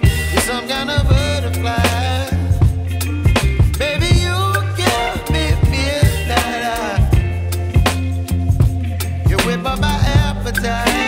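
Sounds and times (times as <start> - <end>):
deep bass line: 0.0 - 11.0
steady drum beat: 0.0 - 11.0.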